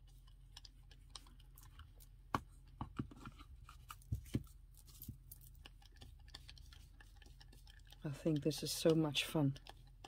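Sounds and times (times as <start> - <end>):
glue brush dabbing paper: 3.8 - 10.0.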